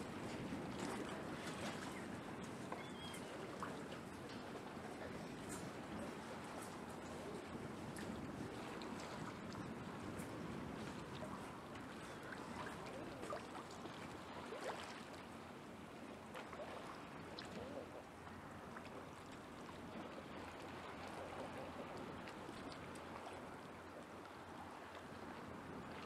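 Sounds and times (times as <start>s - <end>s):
waves lapping against pilings: 0.0s - 26.0s
faint small splashes: 7.9s - 15.4s.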